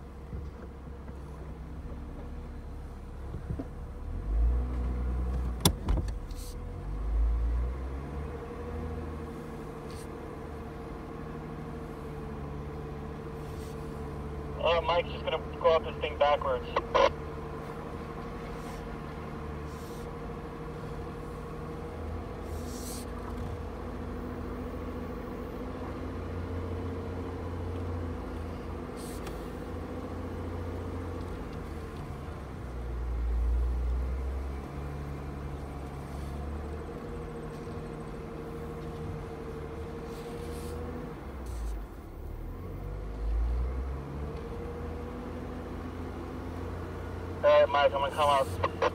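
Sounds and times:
engine rumble inside cab: 0:00.0 - 0:48.9
steady whine: 0:14.6 - 0:17.1, 0:47.4 - 0:48.9.

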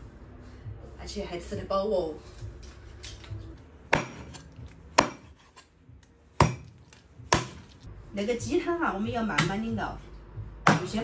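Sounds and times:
cleaver chopping on wooden board: 0:03.9 - 0:05.6, 0:06.4 - 0:07.8, 0:10.6 - 0:11.0.

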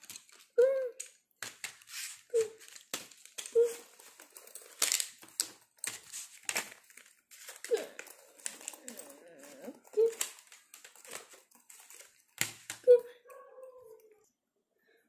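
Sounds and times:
fabric bag rustling: 0:01.9 - 0:12.4.

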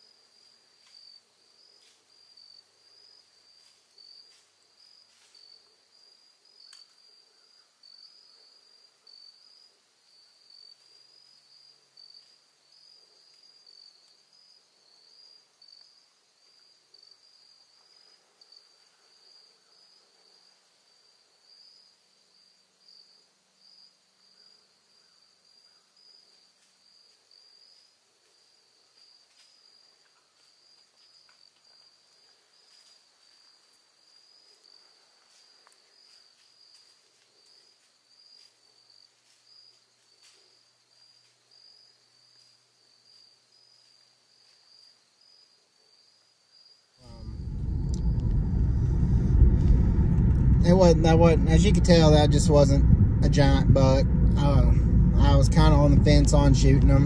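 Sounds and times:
insect chorus chirring: 0:00.0 - 0:57.0
faint ticks: 0:06.6 - 0:07.0, 0:27.8 - 0:33.0.

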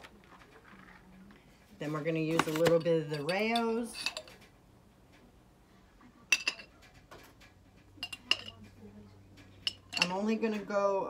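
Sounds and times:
metal spoon clinking on glass jar: 0:02.3 - 0:04.4, 0:08.0 - 0:08.7, 0:09.6 - 0:10.4.

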